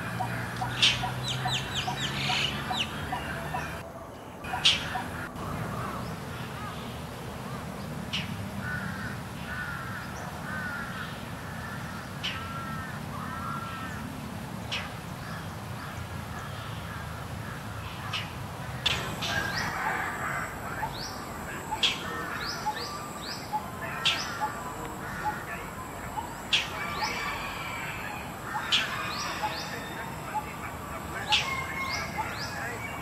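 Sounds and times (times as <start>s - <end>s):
bird giving harsh rasping calls: 0.0s - 3.8s, 18.8s - 33.0s.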